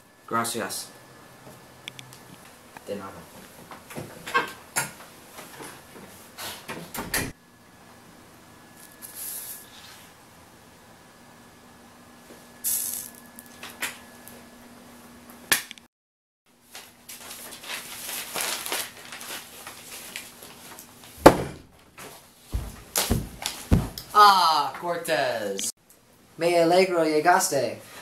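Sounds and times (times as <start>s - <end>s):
paper rustling: 16.7s - 21.2s
sharp thump: 21.2s - 21.8s.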